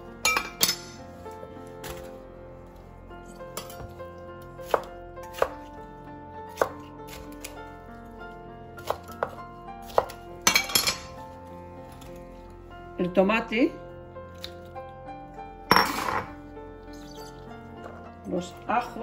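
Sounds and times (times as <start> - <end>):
knife chopping on cutting board: 4.6 - 5.7, 6.5 - 7.5, 8.8 - 10.2.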